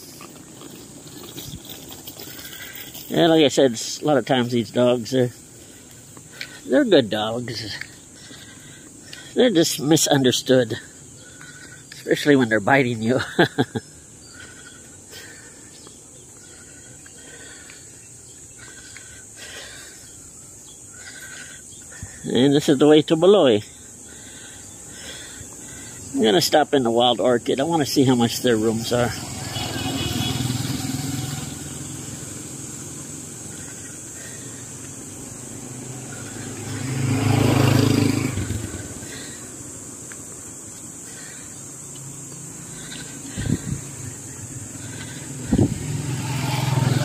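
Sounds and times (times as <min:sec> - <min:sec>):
tricycle engine running: 0:00.0 - 0:03.2, 0:28.7 - 0:39.6, 0:40.5 - 0:47.0
high-pitched insect drone: 0:00.0 - 0:47.0
motorcycle passing loudly: 0:28.8 - 0:39.8, 0:42.4 - 0:47.0.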